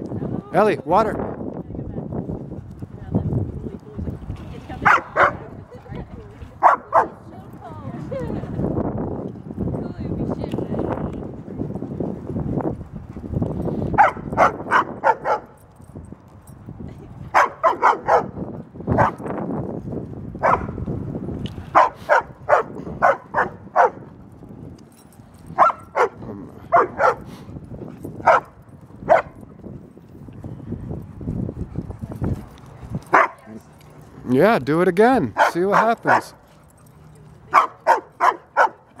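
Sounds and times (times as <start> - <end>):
dog barking: 4.8 - 5.6, 6.6 - 7.2, 14.0 - 15.6, 17.3 - 19.2, 20.4 - 20.8, 21.7 - 24.1, 25.6 - 27.3, 28.2 - 29.4, 33.1 - 33.5, 35.3 - 36.4, 37.5 - 38.9.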